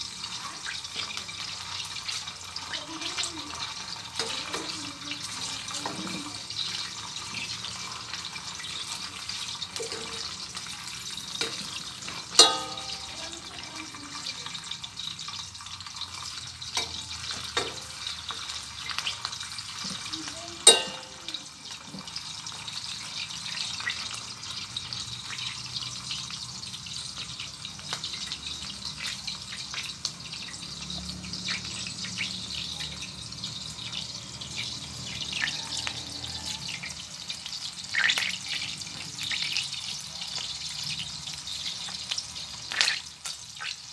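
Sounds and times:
sausages sizzling in frying pan: 0.0 - 43.9.

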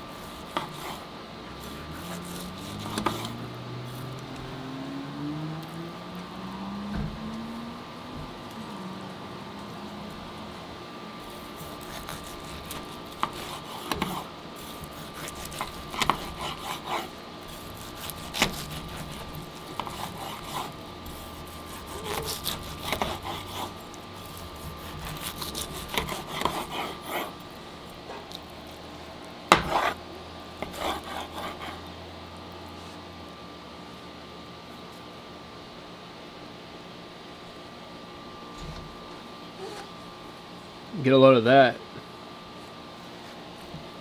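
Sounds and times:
knife sawing through meat: 0.1 - 4.2, 11.3 - 27.4, 29.5 - 30.0, 30.6 - 31.9.

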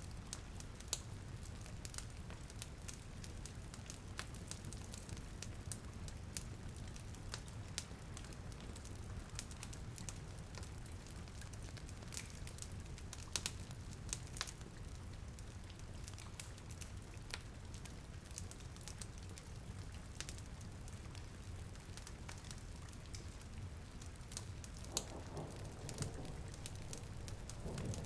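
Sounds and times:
burning wood popping and crackling: 0.3 - 28.0
rain hissing: 24.4 - 28.0.

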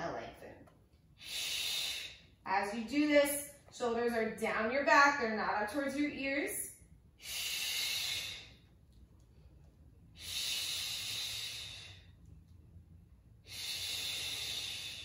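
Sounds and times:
woman breathing: 1.2 - 2.4, 7.1 - 12.4, 13.3 - 15.0.

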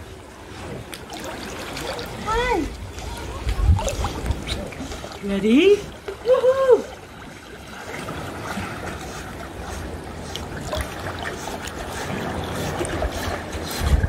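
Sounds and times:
water splashing and lapping: 0.0 - 14.0.

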